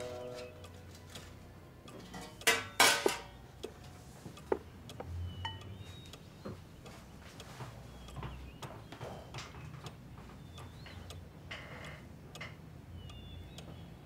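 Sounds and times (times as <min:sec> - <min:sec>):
cutlery clinking against china: 0:01.9 - 0:03.4.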